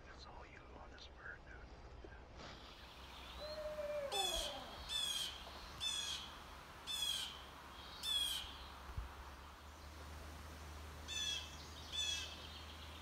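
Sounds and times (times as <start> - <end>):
lower sliding bird call: 2.6 - 6.3.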